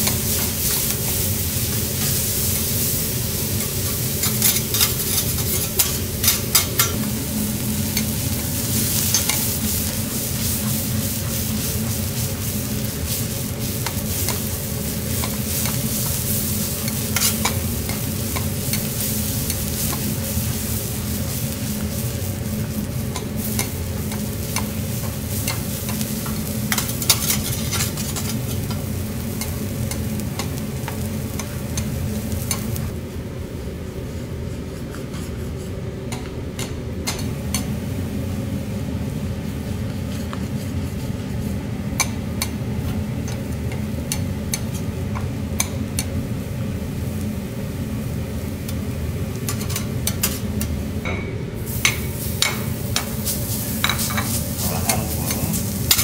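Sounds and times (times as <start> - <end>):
garlic sizzling in oil: 0.0 - 33.0, 37.2 - 51.0, 51.6 - 56.0
metal spatulas scraping hot plate: 3.6 - 7.0, 16.8 - 18.9, 26.7 - 28.8.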